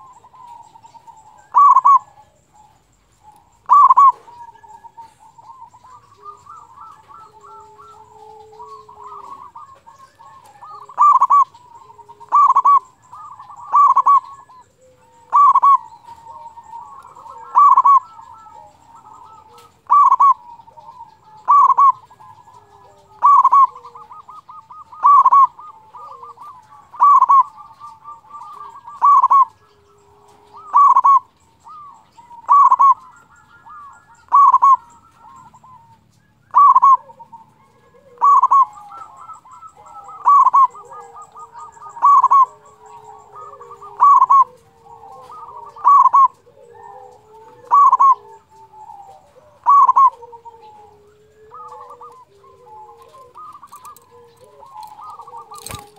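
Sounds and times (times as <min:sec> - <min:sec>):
dove cooing: 0:00.0 - 0:55.9.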